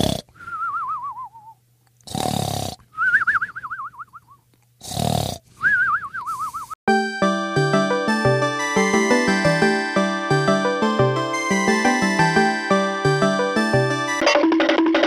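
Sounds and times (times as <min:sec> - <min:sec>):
cartoon snoring: 0:00.0 - 0:00.3, 0:02.0 - 0:02.8, 0:04.8 - 0:05.5.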